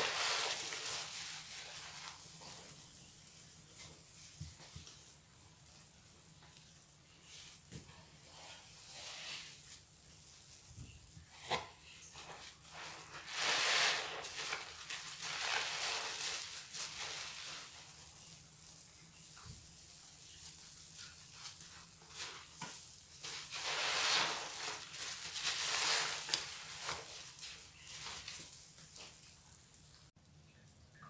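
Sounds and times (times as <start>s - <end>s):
crackling suds: 0.0s - 2.7s, 11.4s - 19.2s, 19.8s - 30.1s
wet sponge squelching: 0.0s - 2.8s, 11.4s - 30.0s.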